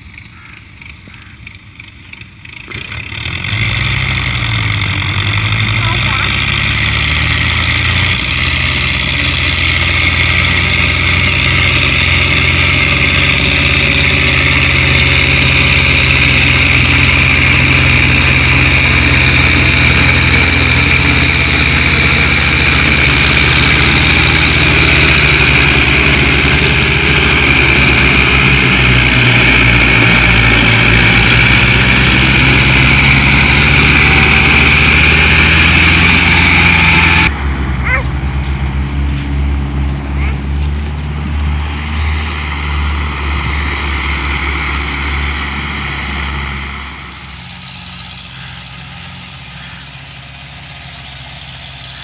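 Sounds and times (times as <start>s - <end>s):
diesel tractors running under load: 0.0s - 52.0s.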